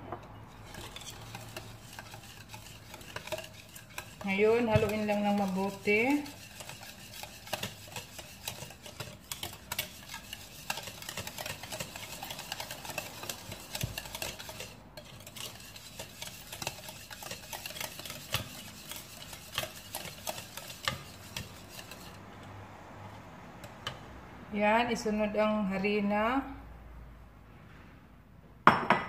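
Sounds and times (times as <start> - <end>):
whisk clicking against bowl: 0.5 - 22.2.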